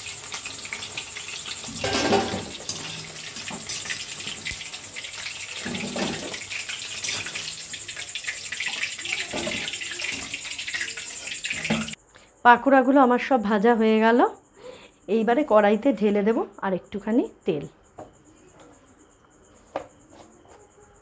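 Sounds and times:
food sizzling in hot oil: 0:00.0 - 0:12.0
skimmer clattering against pan: 0:00.6 - 0:12.0.

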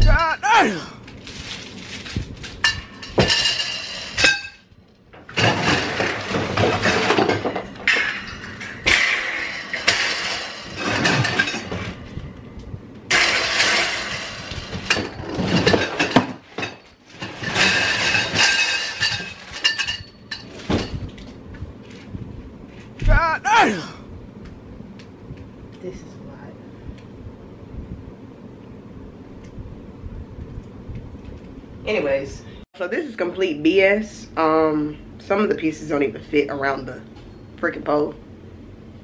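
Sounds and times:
cardboard and plastic rustling: 0:01.0 - 0:03.3
metal rack parts clinking: 0:02.0 - 0:04.6, 0:05.3 - 0:12.0, 0:13.1 - 0:21.3.

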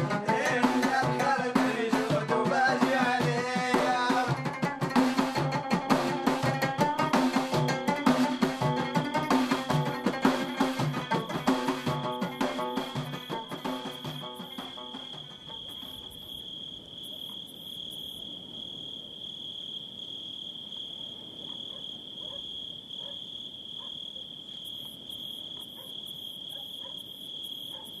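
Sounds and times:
crickets trilling: 0:00.0 - 0:28.0
pulsing high insect call: 0:00.1 - 0:28.0.

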